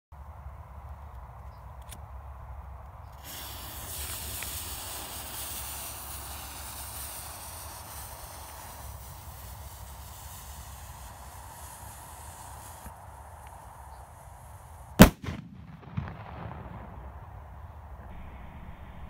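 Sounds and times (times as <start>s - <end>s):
firework fuse hissing: 3.1s - 15.2s.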